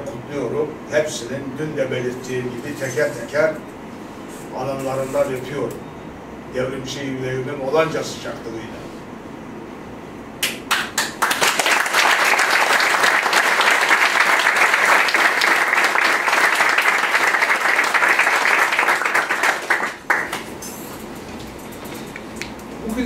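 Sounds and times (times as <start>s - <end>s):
audience applauding: 10.4s - 20.5s.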